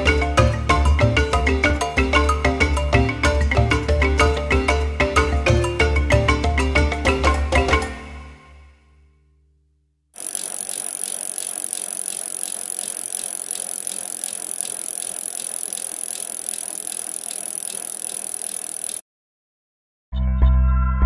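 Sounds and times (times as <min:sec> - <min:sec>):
faint ticking: 0:10.2 - 0:19.0.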